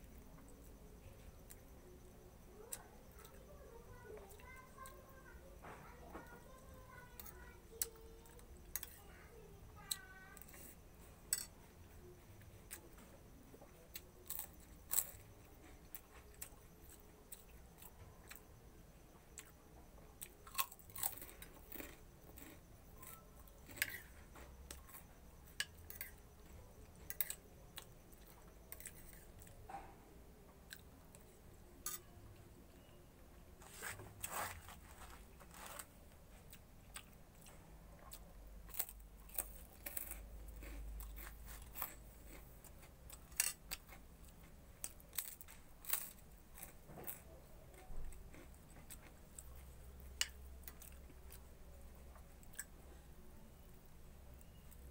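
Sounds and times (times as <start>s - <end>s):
person chewing crisp crackers: 9.8s - 18.5s, 19.2s - 29.7s, 30.6s - 32.1s, 33.6s - 53.0s.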